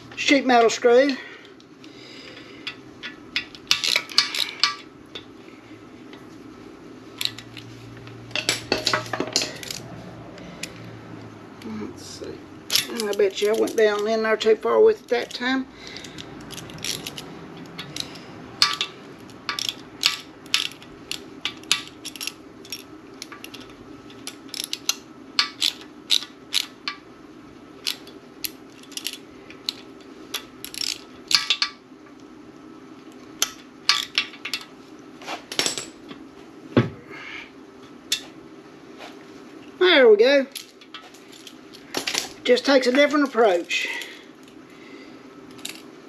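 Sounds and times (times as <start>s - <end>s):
steady low hum: 0.0s - 46.0s
metallic clicks of hand tools: 16.0s - 27.0s.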